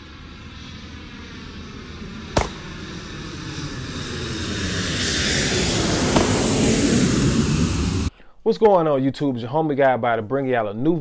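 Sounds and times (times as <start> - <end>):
engine drone: 0.0 - 8.1
pistol shot: 2.4 - 3.0, 6.1 - 6.4.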